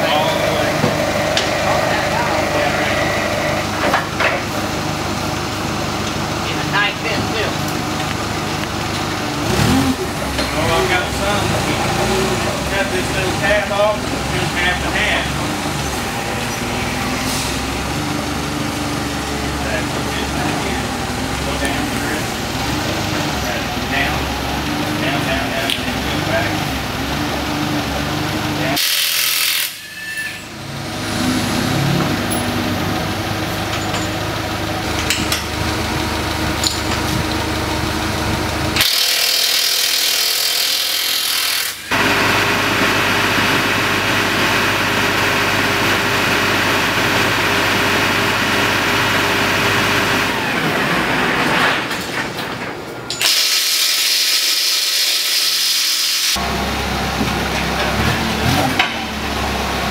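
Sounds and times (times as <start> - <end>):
forklift engine humming: 0.0 - 28.8, 29.9 - 38.9, 41.7 - 53.3, 56.4 - 59.9.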